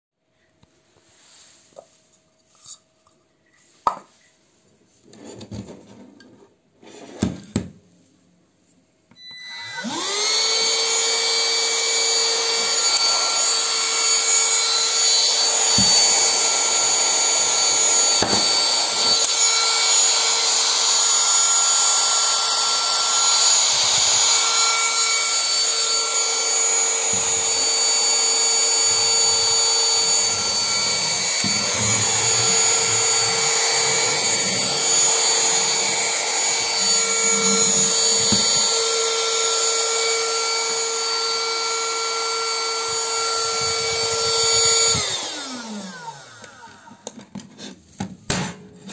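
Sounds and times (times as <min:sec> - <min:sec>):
handheld vacuum motor whining: 0:09.1 - 0:47.8.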